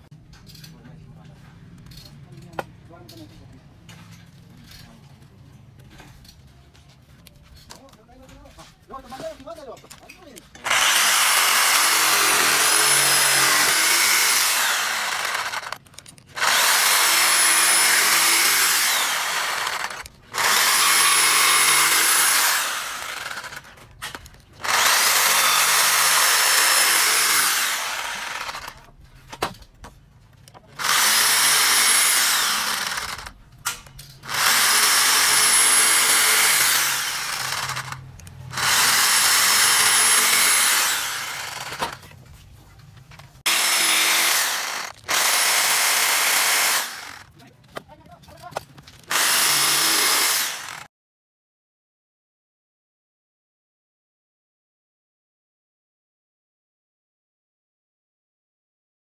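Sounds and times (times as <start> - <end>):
electric jigsaw cutting wood: 10.6 - 15.8, 16.4 - 28.9, 30.8 - 33.4, 34.2 - 42.0, 43.5 - 47.3, 49.1 - 50.9.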